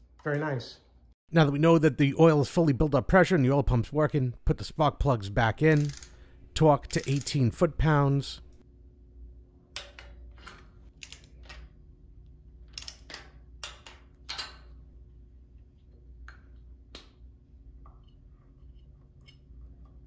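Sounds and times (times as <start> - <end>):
tools and parts clicking and knocking: 5.6 - 6.2, 6.8 - 7.4, 9.7 - 11.8, 12.5 - 14.8
torque wrench ratcheting and clicking: 5.6 - 6.2, 6.8 - 7.4, 11.0 - 11.6, 12.6 - 13.9.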